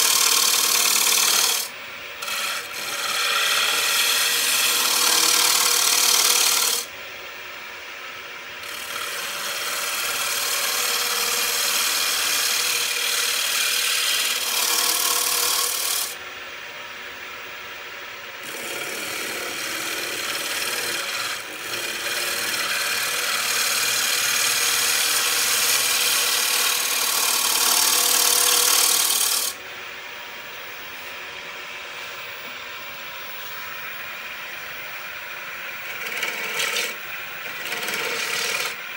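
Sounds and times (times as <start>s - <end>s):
gouge cutting wood on lathe: 0.0s - 6.9s, 8.6s - 16.2s, 18.4s - 29.6s, 35.8s - 38.9s
lathe running hum: 0.0s - 38.9s.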